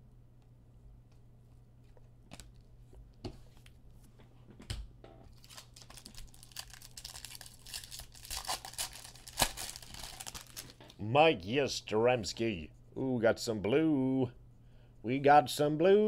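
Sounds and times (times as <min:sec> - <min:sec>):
foil wrapper crinkling and tearing: 0:05.3 - 0:10.8.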